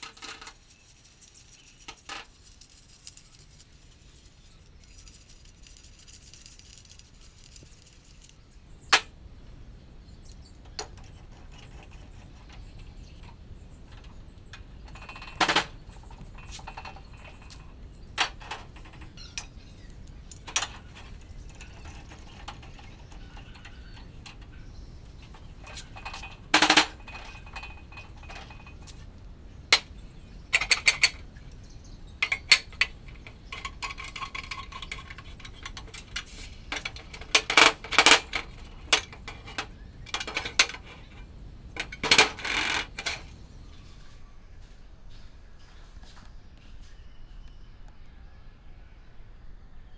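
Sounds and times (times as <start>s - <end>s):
metal parts clicking: 0.0s - 3.8s, 25.2s - 29.0s, 30.5s - 31.2s, 32.2s - 41.2s, 41.8s - 43.3s.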